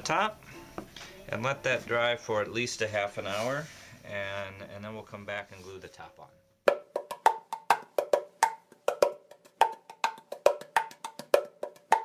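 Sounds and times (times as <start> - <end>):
wooden percussion tapping: 6.6 - 12.0.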